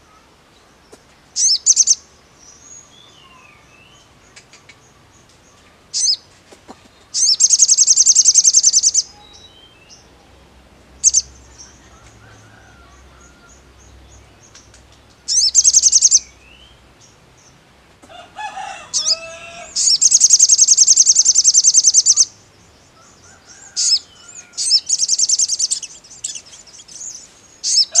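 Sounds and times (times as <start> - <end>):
bird sharp chirps: 7.1 - 10.0, 15.2 - 16.8, 18.9 - 22.4, 23.7 - 28.0.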